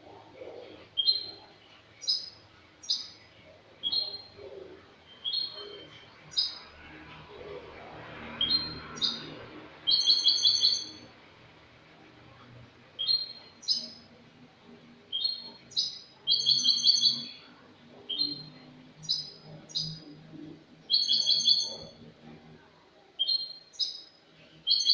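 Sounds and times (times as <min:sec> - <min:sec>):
goldfinch singing: 0:01.0 - 0:03.2, 0:05.0 - 0:06.7, 0:08.4 - 0:11.1, 0:15.1 - 0:17.5, 0:18.1 - 0:20.1, 0:20.9 - 0:22.0, 0:23.2 - 0:24.9.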